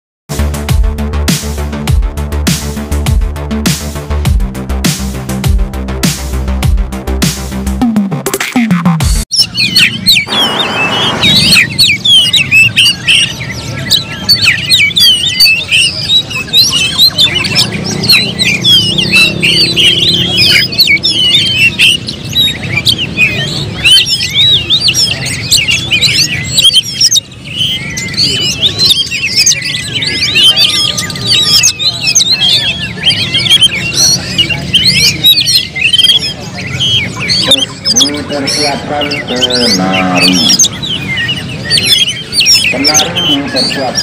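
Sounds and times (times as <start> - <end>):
bird singing: 9.3 - 44.0.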